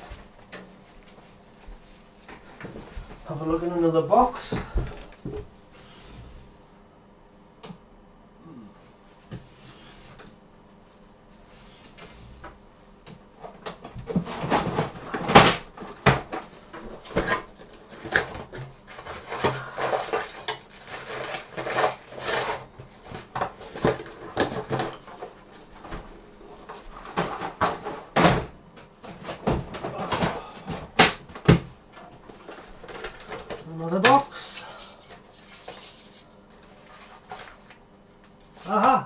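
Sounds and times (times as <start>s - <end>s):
rummaging through box of parts: 14.0s - 26.0s, 26.6s - 31.0s, 32.1s - 36.2s.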